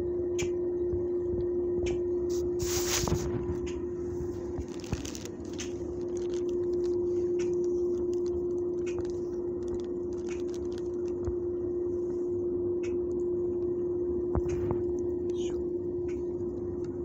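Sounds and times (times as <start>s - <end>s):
steady mechanical hum: 0.0s - 17.0s
low rumble: 0.9s - 17.0s
small clicks and rustles: 2.6s - 11.4s.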